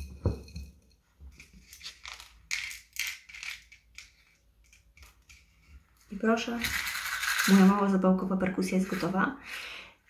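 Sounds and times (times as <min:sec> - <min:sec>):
lentils and matchsticks clicking in matchbox: 0:01.6 - 0:07.9.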